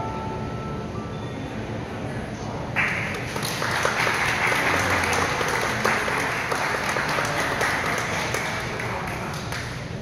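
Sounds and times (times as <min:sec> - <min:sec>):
people applauding: 0:02.8 - 0:10.0.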